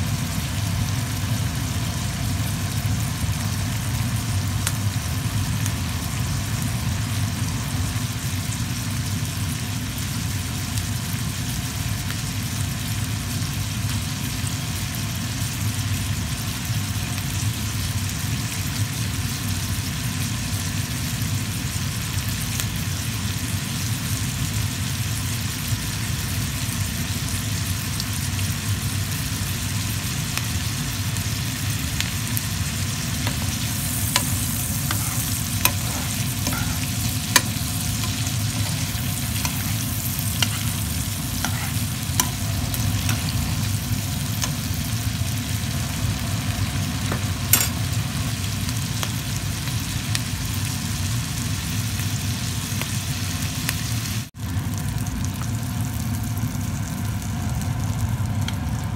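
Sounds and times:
green beans sizzling in fat: 0.0 - 58.9
low steady hum: 31.2 - 49.1.

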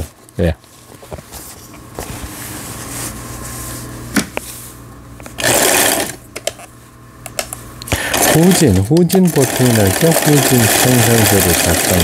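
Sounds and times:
sewing machine humming: 5.4 - 6.2, 7.9 - 12.0.

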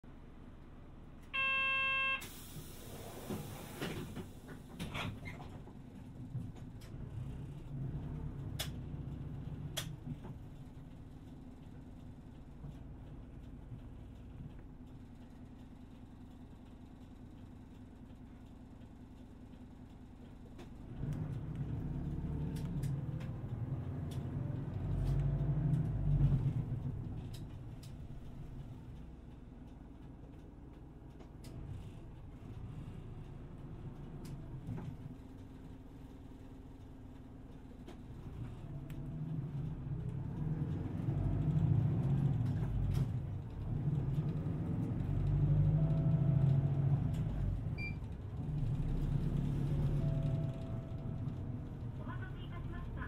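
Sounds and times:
bus door warning buzzer: 1.4 - 2.4
bus door closing clunks: 1.4 - 5.7
motor vehicle engine rumble: 2.5 - 53.0.

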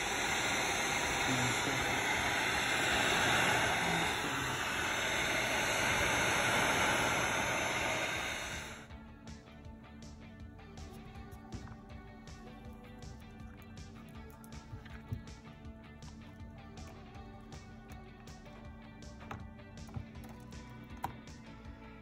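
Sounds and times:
heat gun blowing: 0.0 - 8.9.

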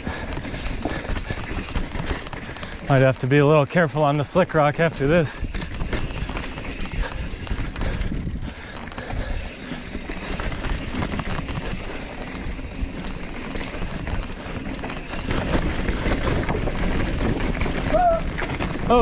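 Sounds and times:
bike rattling over rocks: 0.0 - 19.0
bike tyres rolling on dirt: 0.0 - 19.0
wind rumble on microphone: 5.3 - 9.3.

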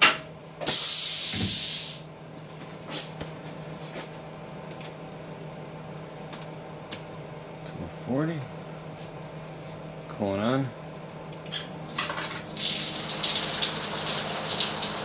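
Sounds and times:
compressed air hissing: 0.7 - 2.0.

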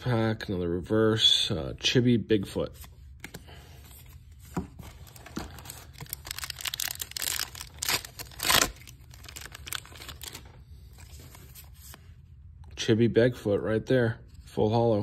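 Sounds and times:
foil wrapper crinkling and tearing: 5.5 - 11.1.

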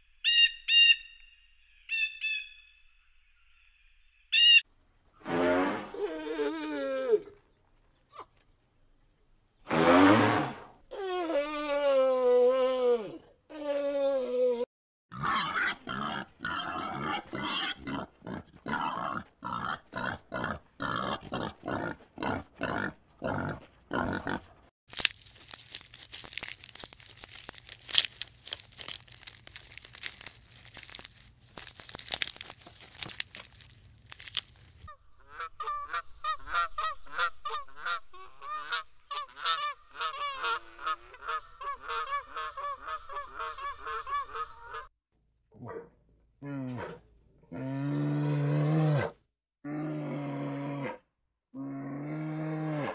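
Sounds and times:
boars grunting: 15.1 - 24.5.

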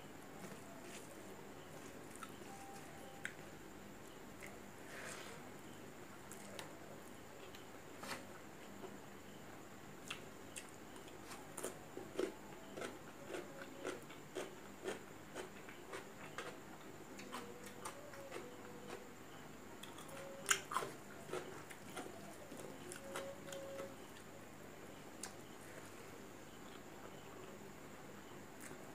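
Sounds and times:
person chewing food: 10.0 - 16.6, 19.8 - 23.6.

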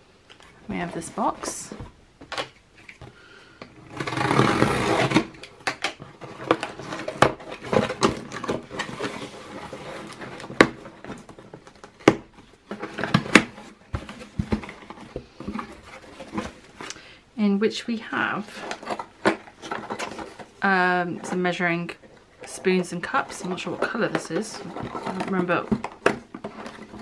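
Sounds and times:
tape ripping from cardboard box: 3.9 - 5.5.

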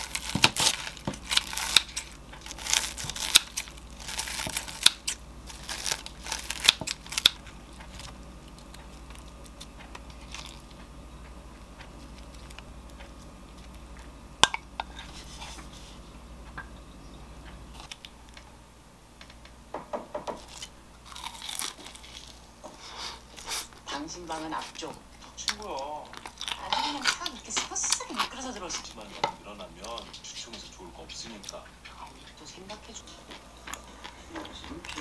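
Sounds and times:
scissors crunching through cutlet: 0.0 - 14.2, 20.4 - 22.5, 23.2 - 35.0.

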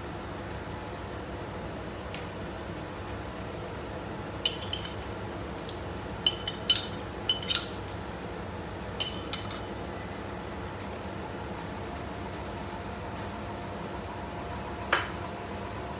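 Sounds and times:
glass bowl clinking on pot: 4.5 - 5.2, 6.3 - 7.9, 9.0 - 9.8.

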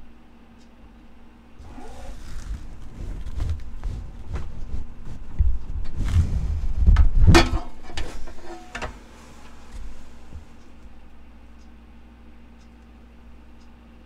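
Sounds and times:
handling thumps and rubbing: 1.6 - 10.7.

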